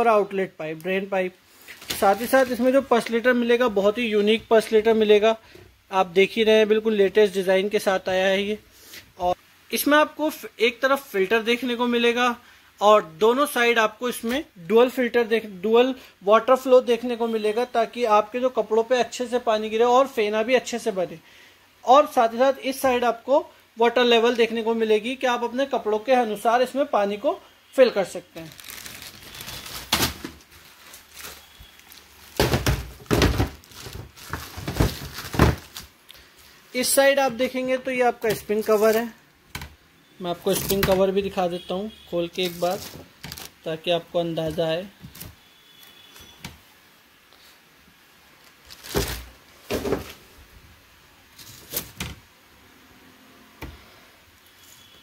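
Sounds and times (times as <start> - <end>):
plastic wrapping crinkling: 1.6 - 4.8, 28.1 - 36.6, 38.2 - 39.3, 40.4 - 41.5, 42.3 - 46.6, 48.4 - 50.2.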